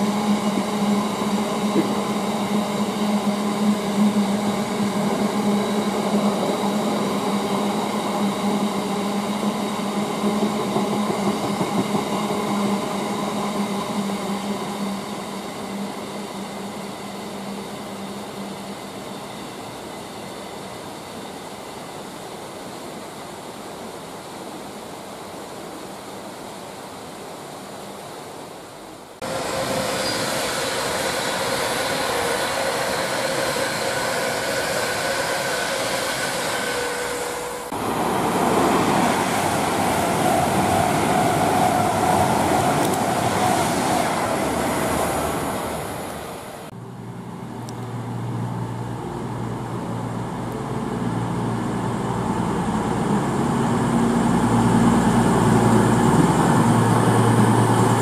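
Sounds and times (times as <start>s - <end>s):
train wheels rumbling on rails: 0.0s - 21.6s, 29.2s - 58.0s
deep train engine hum: 0.0s - 22.3s, 29.2s - 58.0s
rain hiss: 12.4s - 46.7s.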